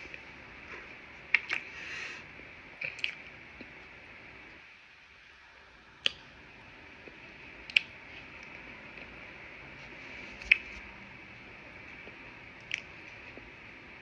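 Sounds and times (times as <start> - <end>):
wet chewing clicks: 1.3 - 1.7.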